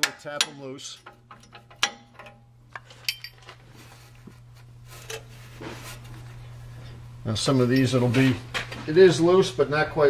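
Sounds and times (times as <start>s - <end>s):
hammer striking wrench: 0.0s - 2.4s
light metallic clinks: 3.0s - 3.6s, 7.7s - 8.3s.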